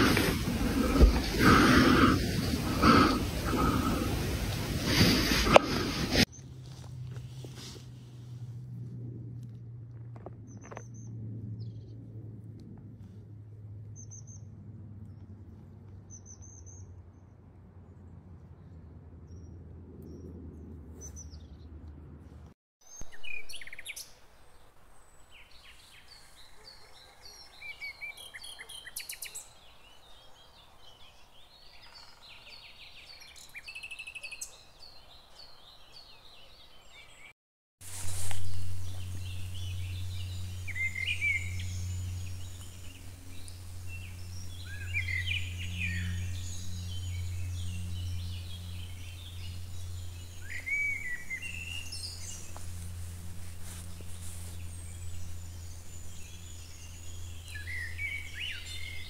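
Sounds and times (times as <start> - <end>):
small birds chirping: 0.0 - 6.6, 37.9 - 59.0
steady low hum: 0.0 - 16.1, 37.9 - 59.0.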